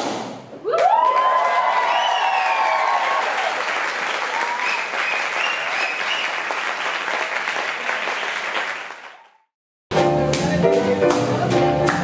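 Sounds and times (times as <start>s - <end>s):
audience applauding: 0.8s - 9.5s
jazz band playing: 9.9s - 12.0s.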